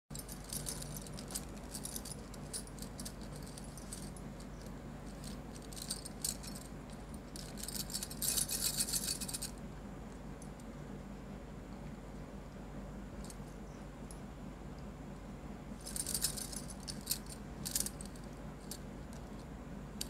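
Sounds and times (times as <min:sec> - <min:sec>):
glass bangles clinking: 0:00.1 - 0:09.5, 0:15.8 - 0:18.8.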